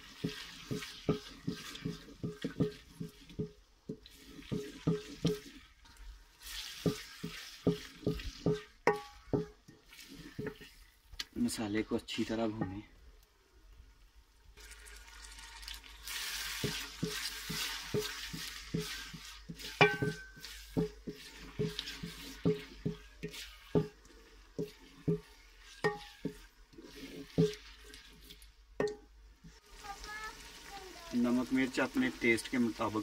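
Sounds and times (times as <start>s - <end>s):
masala sizzling in pot: 0.0s - 33.0s
spoon knocking against pot: 0.2s - 5.5s, 7.6s - 9.7s, 16.6s - 24.0s, 24.6s - 26.5s, 28.8s - 29.1s.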